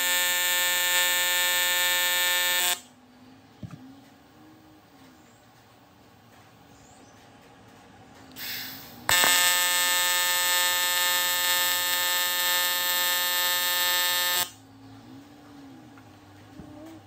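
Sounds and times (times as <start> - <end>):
welding arc buzzing: 0.0 - 2.9, 9.1 - 14.6
short hiss: 8.4 - 9.0.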